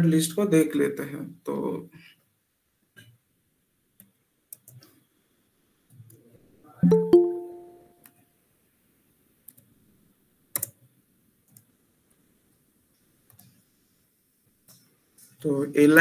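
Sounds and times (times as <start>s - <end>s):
notification chime: 6.8s - 7.9s
computer keyboard key presses: 10.6s - 10.8s.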